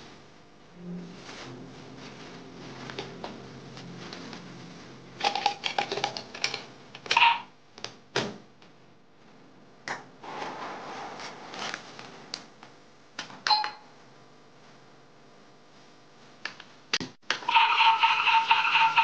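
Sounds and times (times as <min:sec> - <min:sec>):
toy washing machine drum spinning: 0:17.5 - 0:19.0.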